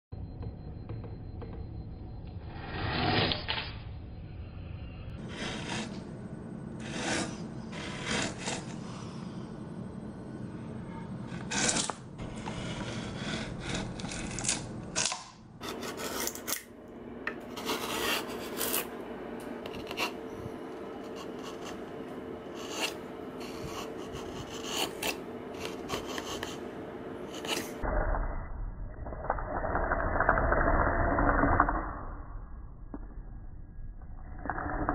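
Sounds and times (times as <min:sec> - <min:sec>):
chisel scraping through wood: 0:05.2 - 0:06.1, 0:06.8 - 0:09.0, 0:11.3 - 0:16.7, 0:17.5 - 0:18.9, 0:22.5 - 0:26.6.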